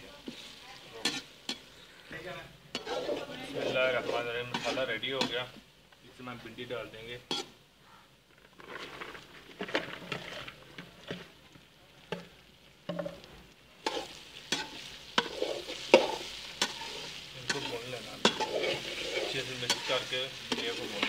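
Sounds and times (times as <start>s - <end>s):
okra frying with a sizzle: 0.0s - 21.0s
metal spatula scraping a pan: 0.1s - 5.6s, 7.2s - 7.6s, 13.8s - 21.0s.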